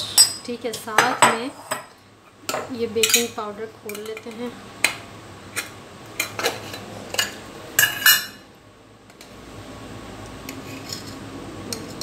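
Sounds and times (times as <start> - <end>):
spoon scraping in tin: 10.5 - 12.0.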